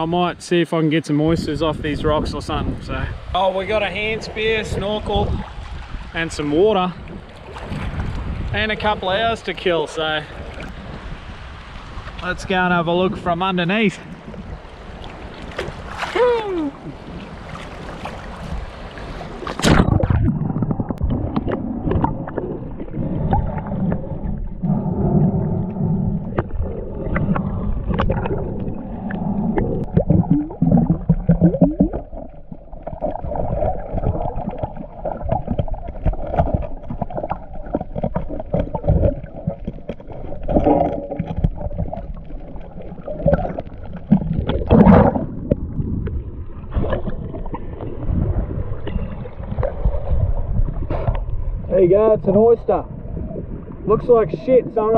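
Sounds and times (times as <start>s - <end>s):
water splash: 14.4s - 51.5s
underwater gurgling and bubbling: 16.7s - 51.8s, 52.8s - 54.9s.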